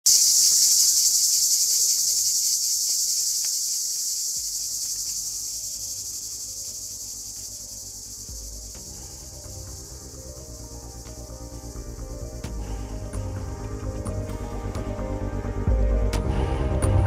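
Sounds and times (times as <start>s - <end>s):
cicadas buzzing: 0.0s - 16.5s
soft low music notes: 4.4s - 17.0s.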